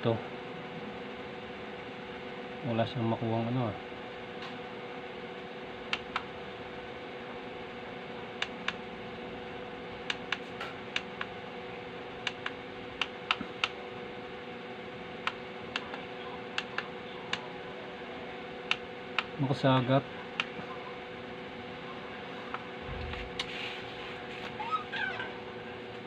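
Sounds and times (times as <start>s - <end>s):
radio hum and hiss: 0.0s - 24.7s.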